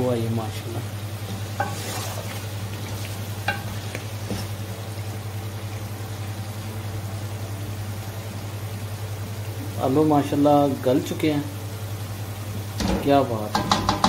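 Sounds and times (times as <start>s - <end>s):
steady sizzle of frying: 0.0s - 14.0s
wooden spatula stirring in a pot: 1.1s - 6.4s
spatula knocking against pot: 12.8s - 14.0s.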